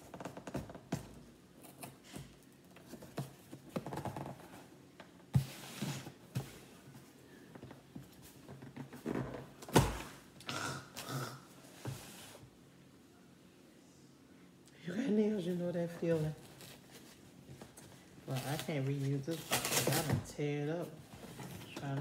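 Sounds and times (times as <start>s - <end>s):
tape scratching and tearing: 18.3s - 20.2s.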